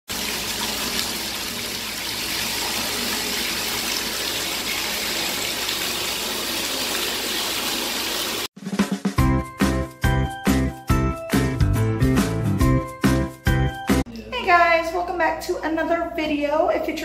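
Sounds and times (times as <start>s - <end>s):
water gushing into bathtub: 0.1s - 8.5s.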